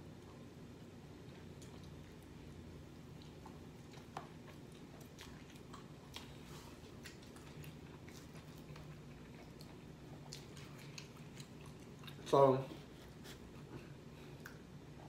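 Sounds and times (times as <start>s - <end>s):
low steady hum: 0.0s - 15.0s
chewing and biting: 1.2s - 12.3s.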